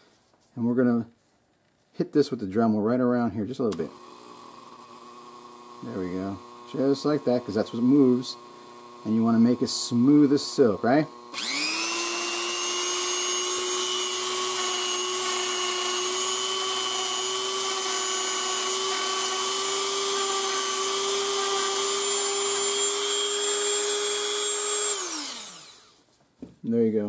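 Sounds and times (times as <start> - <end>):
rotary tool whining: 3.7 - 26.1.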